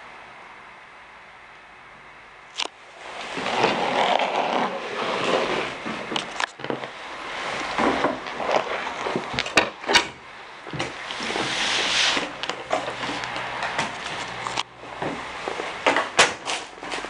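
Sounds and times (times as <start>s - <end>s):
sharp clicks and knocks: 5.8s - 7.0s, 7.6s - 11.4s.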